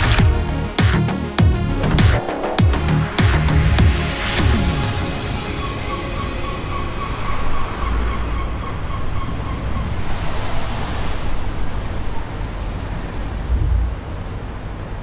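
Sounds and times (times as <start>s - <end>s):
steady rushing noise: 6.7s - 15.0s
deep rumble: 7.6s - 15.0s.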